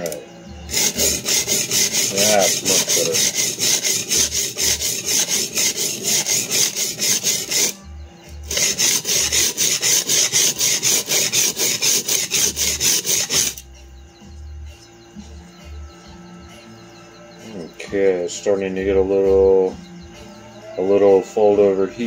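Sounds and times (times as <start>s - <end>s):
blade scraping on sharpening stone: 0.0s - 7.8s, 8.4s - 13.6s.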